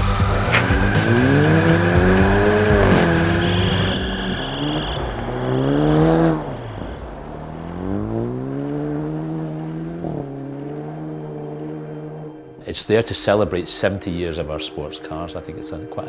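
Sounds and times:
rally car engine pulling hard: 0.0 - 12.3.

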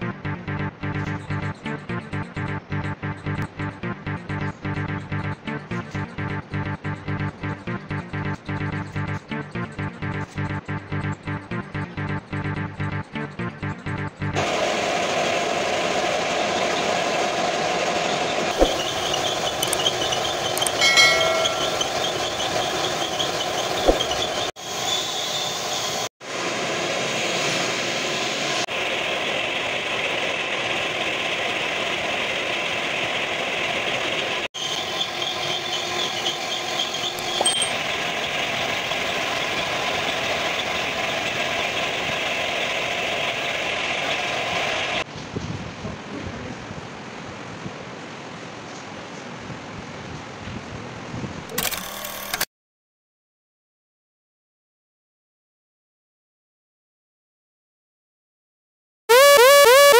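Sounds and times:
short clicks: 19.6 - 19.8, 51.5 - 52.5.

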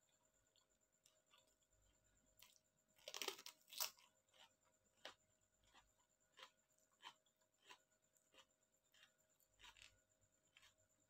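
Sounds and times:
chewing with crisp crunches: 0.0 - 11.0
crunchy bite into cucumber: 2.4 - 10.9.

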